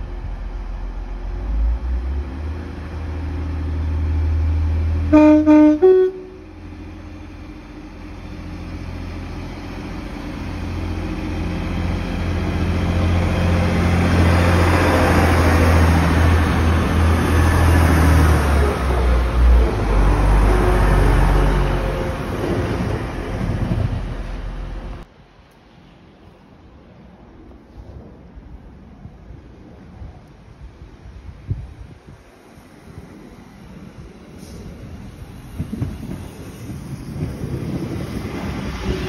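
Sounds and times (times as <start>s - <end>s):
diesel engine rumble: 0.0s - 25.1s
two-tone train horn: 5.1s - 6.5s
train wheel noise: 6.5s - 25.1s, 32.0s - 39.0s.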